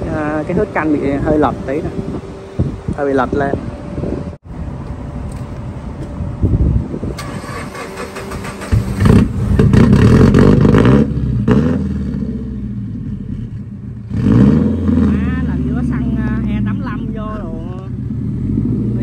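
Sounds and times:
sports car engine surging: 0:06.9 - 0:19.0.

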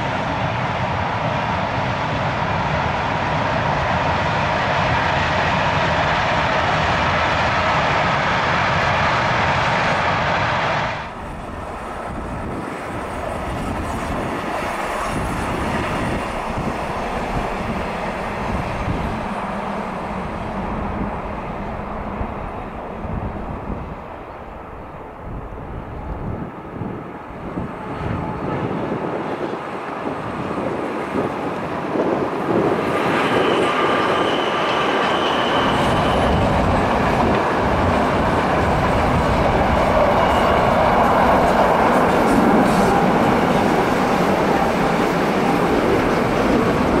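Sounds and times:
freight train rolling past: 0:00.0 - 0:47.0
locomotive rumbling past: 0:00.0 - 0:47.0
high wheel squeal: 0:32.6 - 0:37.4.

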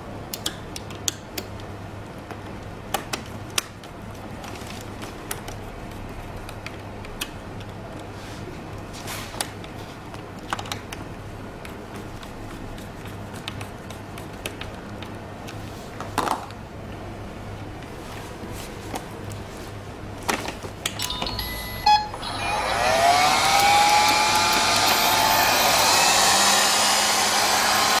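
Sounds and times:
vacuum fan motor whining: 0:21.1 - 0:28.0.

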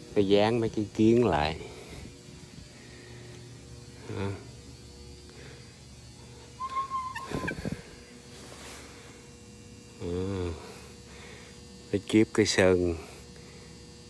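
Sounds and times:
low electrical hum: 0:00.0 - 0:14.0
brief high tone: 0:06.6 - 0:07.8.

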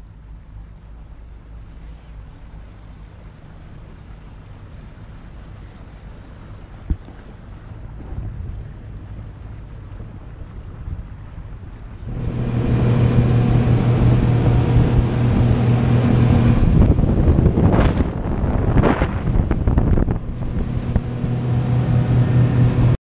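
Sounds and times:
outboard motors droning: 0:00.0 - 0:23.0
wind noise on microphone: 0:06.7 - 0:23.0
spray rushing off hull: 0:11.1 - 0:23.0.

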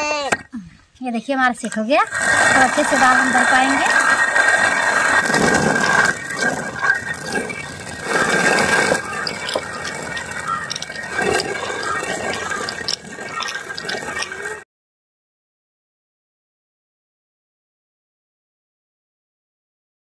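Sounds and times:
stone quern grinding beans: 0:01.8 - 0:14.6.

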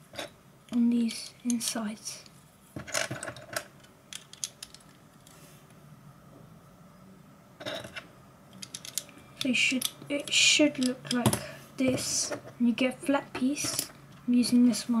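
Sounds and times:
plastic bricks clicking: 0:02.9 - 0:05.0, 0:08.6 - 0:09.9.

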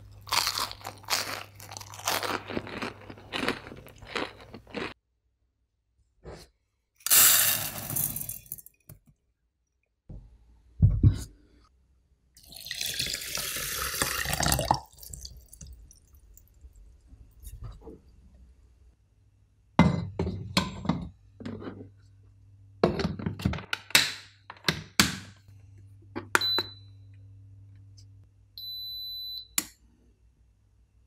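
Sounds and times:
rice cooker button beeps: 0:26.4 - 0:26.9, 0:28.6 - 0:29.6.

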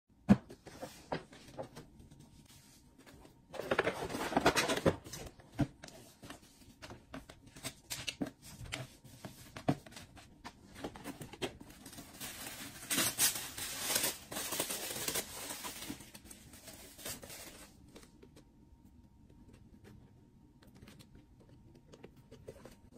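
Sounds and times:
tissue paper crinkling: 0:11.7 - 0:18.1.

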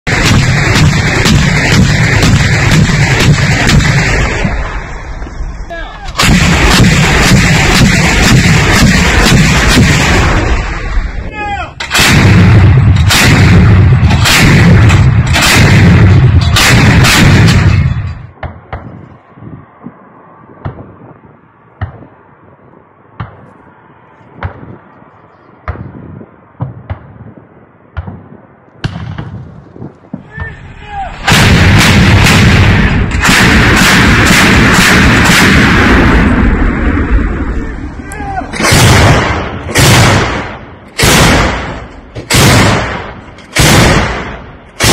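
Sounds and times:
anti-aircraft guns firing: 0:00.1 - 0:05.1, 0:06.1 - 0:11.2, 0:11.8 - 0:19.0, 0:26.6 - 0:29.6, 0:31.2 - 0:37.6, 0:38.5 - 0:44.9.

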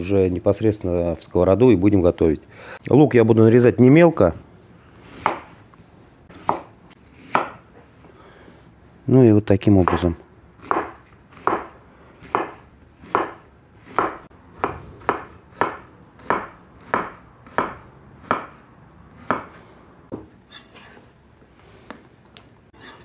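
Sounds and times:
knife chopping on cutting board: 0:05.2 - 0:05.5, 0:06.3 - 0:06.7, 0:07.3 - 0:07.6, 0:10.6 - 0:18.5, 0:19.2 - 0:20.3.

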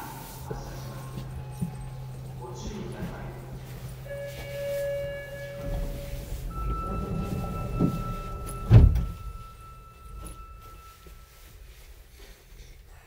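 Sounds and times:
steady warning tone: 0:00.0 - 0:11.9
low rumble of stopped train: 0:00.0 - 0:13.0
train doors shutting with thud: 0:01.0 - 0:11.2
short electronic chime: 0:04.1 - 0:11.4.

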